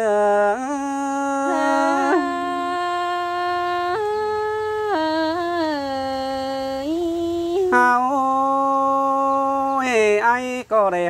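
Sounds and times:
man singing held notes: 0.0s - 3.6s, 7.7s - 10.0s
woman singing sustained note: 1.3s - 5.9s, 7.7s - 8.2s.

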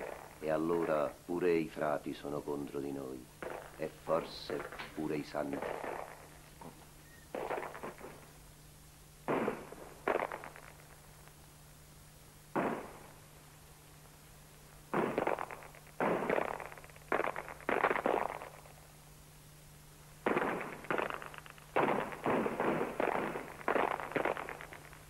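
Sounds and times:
gunshots echoing: 3.4s - 6.3s, 7.3s - 8.2s, 9.3s - 10.8s, 12.5s - 13.1s, 14.9s - 18.7s, 20.2s - 25.0s.

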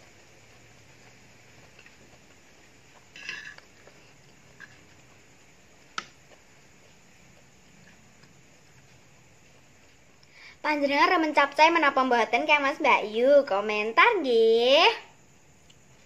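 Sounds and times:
faint room hiss: 0.0s - 16.0s
metal spoon scraping plastic plate: 3.2s - 3.6s.

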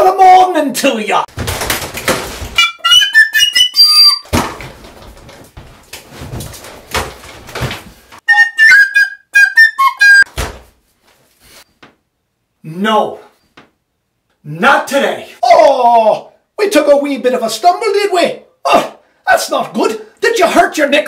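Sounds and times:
recorder playing quick high notes: 2.6s - 4.3s, 8.3s - 10.3s
thump: 4.3s - 7.9s, 10.3s - 10.8s.

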